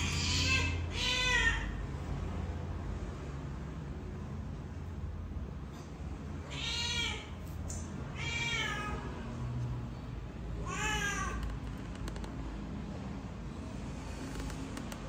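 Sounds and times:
young cat meowing: 0:00.0 - 0:01.8, 0:06.5 - 0:07.4, 0:08.2 - 0:09.1, 0:10.6 - 0:11.6.

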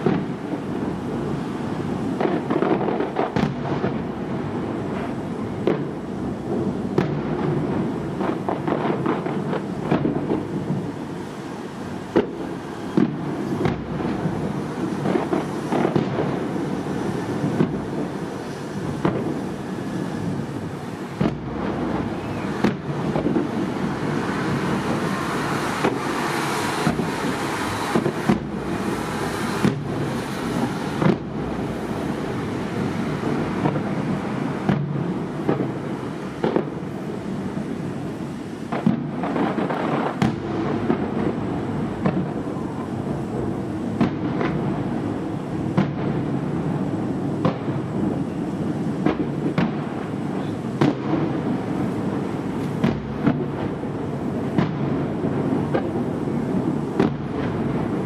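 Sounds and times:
continuous fireworks rumble: 0:00.0 - 0:58.0
fireworks bangs: 0:00.0 - 0:58.0.

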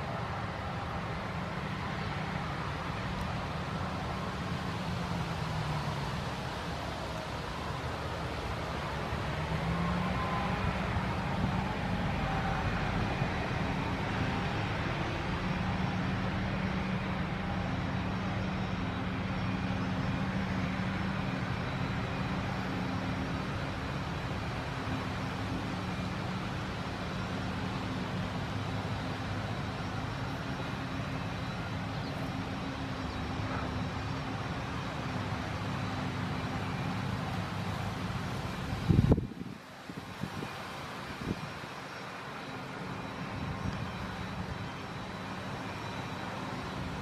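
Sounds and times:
forage harvester droning: 0:00.0 - 0:47.0.

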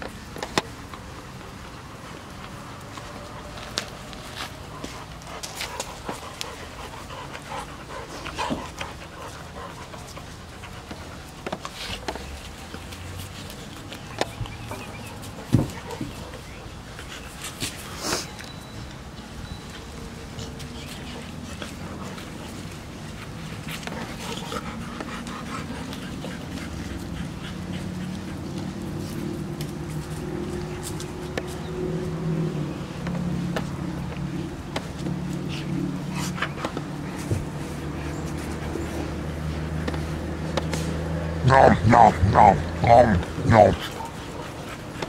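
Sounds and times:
dogs panting: 0:01.6 - 0:18.5, 0:19.6 - 0:45.0.

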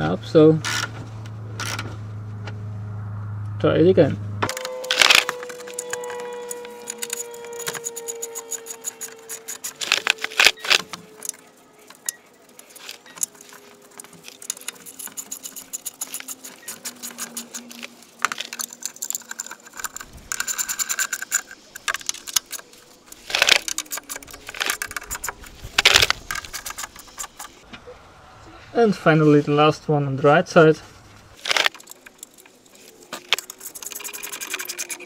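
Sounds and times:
hand tool clicking and rattling: 0:04.5 - 0:27.6, 0:31.4 - 0:35.0.

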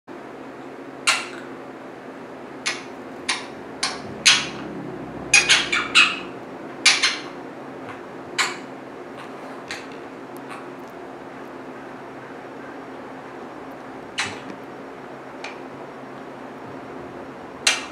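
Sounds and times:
parrot clicking calls: 0:01.0 - 0:01.5, 0:02.6 - 0:04.7, 0:17.6 - 0:17.9.

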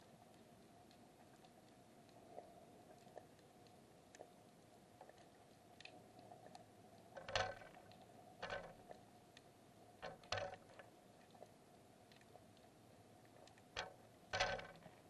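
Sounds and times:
low underwater hum: 0:00.0 - 0:15.0
small underwater clicks: 0:00.0 - 0:15.0
crackling knocks: 0:07.2 - 0:09.0, 0:10.0 - 0:11.0, 0:13.7 - 0:15.0.

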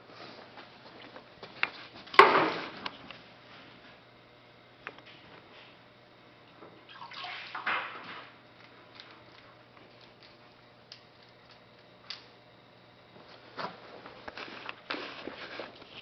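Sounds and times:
water splashing and sloshing: 0:06.9 - 0:08.0.

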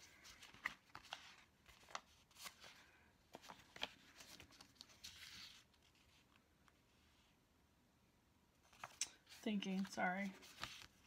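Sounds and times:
paper rustle: 0:00.0 - 0:06.5, 0:08.6 - 0:11.0.

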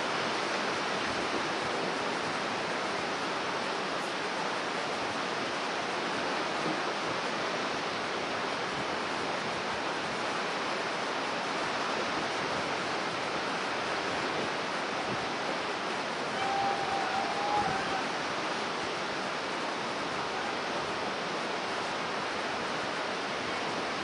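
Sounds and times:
storm surf breaking over rocks: 0:00.0 - 0:24.0
faint high tone: 0:16.3 - 0:18.1.

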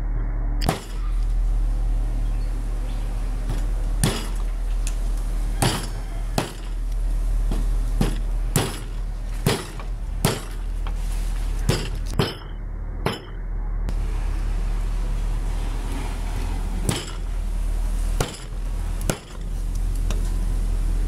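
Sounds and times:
meat cleaver chopping on wood: 0:05.6 - 0:06.7.

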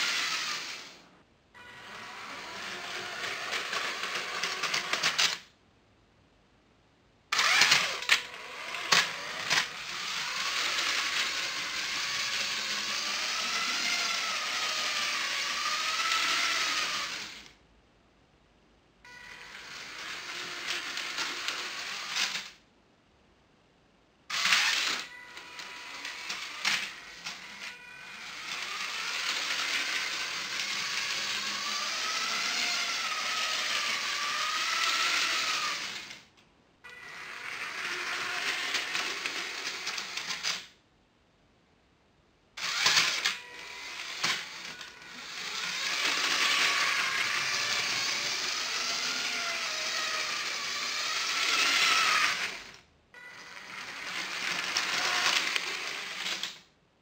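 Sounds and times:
toy train motor whining: 0:00.0 - 0:05.5, 0:07.3 - 0:17.6, 0:19.1 - 0:22.6, 0:24.3 - 0:36.3, 0:36.9 - 0:40.8, 0:42.6 - 0:56.7
wheels rattling on plastic track: 0:02.4 - 0:05.5, 0:07.4 - 0:17.5, 0:19.6 - 0:22.6, 0:24.4 - 0:36.2, 0:37.6 - 0:40.7, 0:42.6 - 0:52.8, 0:53.8 - 0:56.6.

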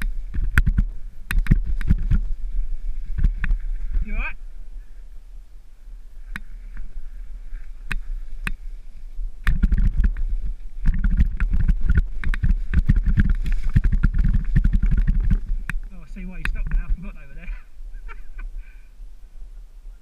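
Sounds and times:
bike knocking and rattling: 0:00.0 - 0:02.4, 0:03.1 - 0:03.9, 0:09.4 - 0:16.9
wind rumbling on microphone: 0:00.0 - 0:20.0.

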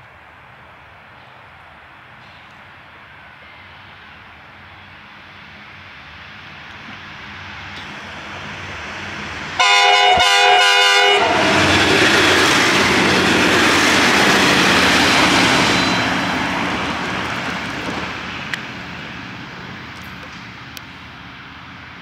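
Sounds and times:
train passing with engine rush: 0:00.0 - 0:22.0
train horn: 0:09.6 - 0:12.0.

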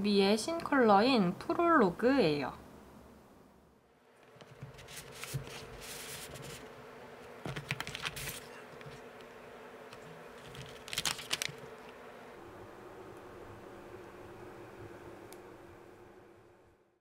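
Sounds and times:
faint steady hum: 0:00.0 - 0:17.0
packaging rustling and clicking: 0:07.4 - 0:09.1, 0:09.9 - 0:12.0.

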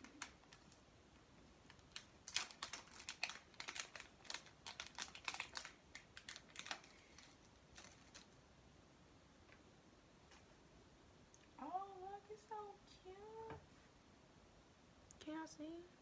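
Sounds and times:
plastic packet crinkling: 0:00.0 - 0:00.8, 0:01.6 - 0:08.4.

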